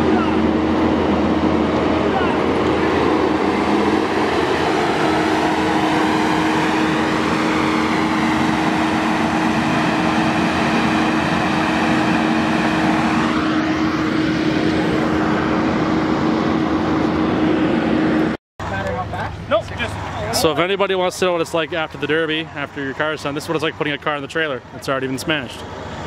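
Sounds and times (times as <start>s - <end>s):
rising pitched sound: 0.0s - 18.4s
diesel engine running: 0.0s - 26.0s.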